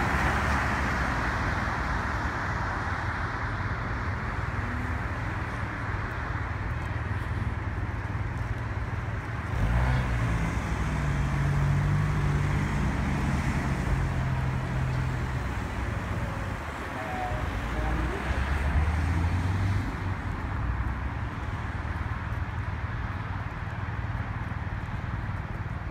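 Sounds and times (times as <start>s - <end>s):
traffic on wet streets: 0.0s - 25.9s
car engine passing close: 8.8s - 23.4s.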